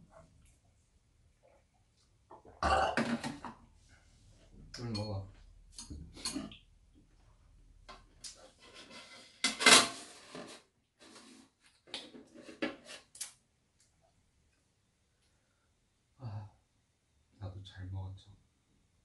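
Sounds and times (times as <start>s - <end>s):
dishes clinking on a metal tray: 5.8s - 6.6s.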